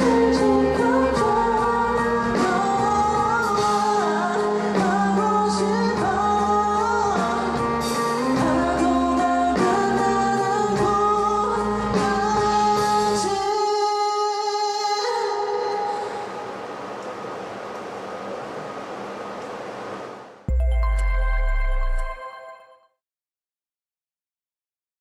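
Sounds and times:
pop-rock ballad with male vocals: 0:00.0 - 0:16.2.

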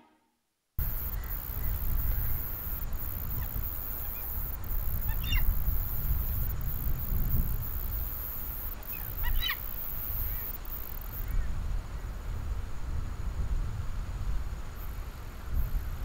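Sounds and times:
steady high hiss: 0:00.8 - 0:16.0
faint bird calls: 0:03.2 - 0:05.6, 0:08.8 - 0:10.6.

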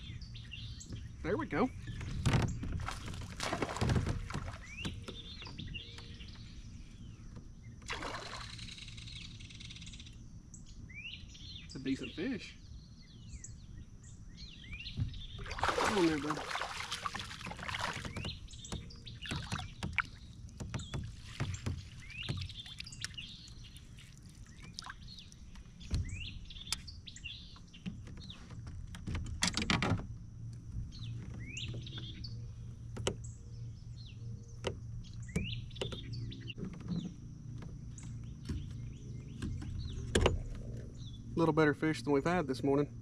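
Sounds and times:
knocks in a kayak: 0:01.8 - 0:06.5, 0:14.8 - 0:23.5, 0:24.6 - 0:26.9, 0:34.5 - 0:40.8
water splashes: 0:02.2 - 0:05.0, 0:07.8 - 0:09.0, 0:15.0 - 0:25.6.

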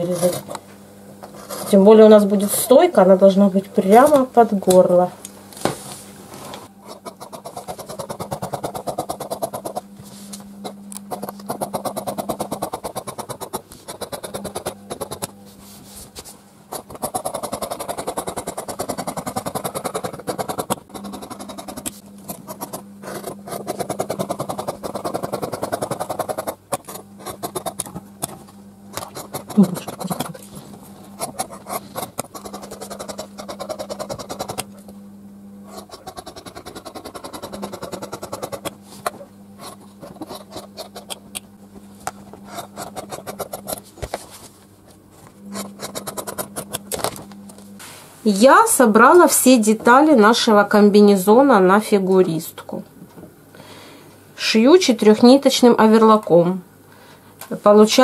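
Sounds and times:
shears snipping fabric: 0:00.0 - 0:00.6, 0:06.8 - 0:15.4, 0:16.1 - 0:34.9, 0:35.7 - 0:41.4.

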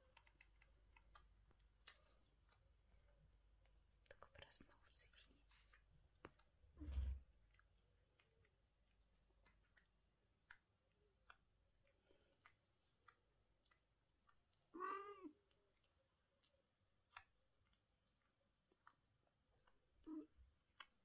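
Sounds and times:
cat meowing: 0:14.7 - 0:15.4.

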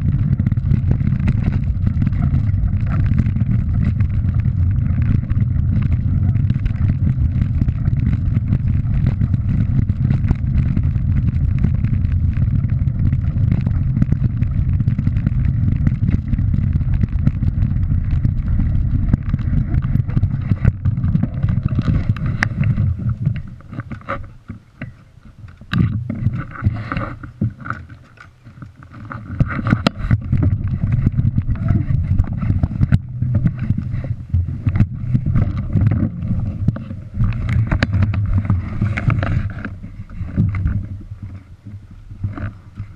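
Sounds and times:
stones rattling: 0:00.0 - 0:25.0
bike tyres on gravel: 0:00.0 - 0:42.9
wind rumble on microphone: 0:00.0 - 0:42.9.

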